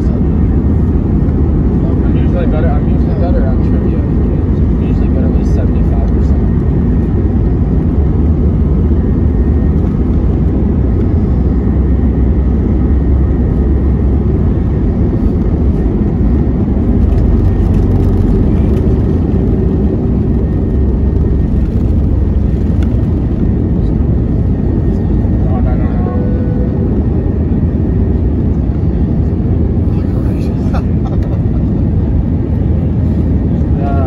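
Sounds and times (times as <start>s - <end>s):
airliner cabin engine rumble: 0.0s - 34.0s
faint steady whine: 0.0s - 34.0s.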